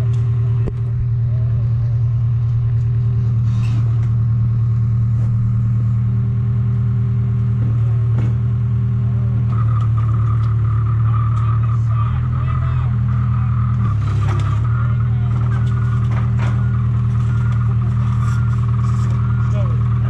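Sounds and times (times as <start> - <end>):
large engine running: 0.0 - 20.0
high-pitched whine: 9.5 - 20.0.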